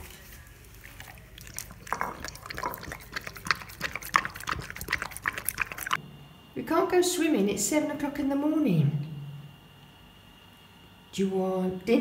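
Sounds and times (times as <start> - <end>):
dog lapping liquid: 0.8 - 6.0.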